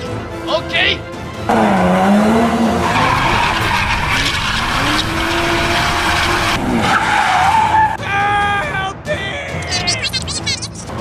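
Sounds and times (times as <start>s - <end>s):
tyres skidding: 1.3s - 8.0s
car engine revving: 1.4s - 7.9s.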